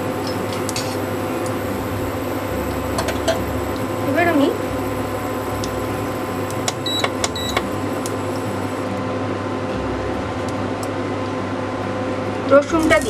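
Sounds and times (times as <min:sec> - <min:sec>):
induction cooktop humming: 0:00.0 - 0:13.0
short high beeps: 0:06.8 - 0:07.7.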